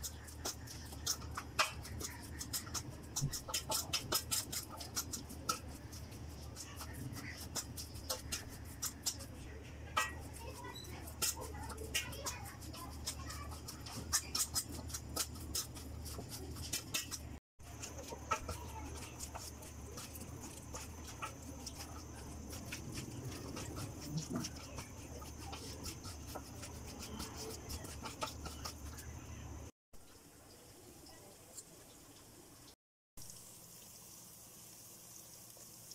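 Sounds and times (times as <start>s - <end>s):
hands squishing wet food: 0.0s - 29.7s.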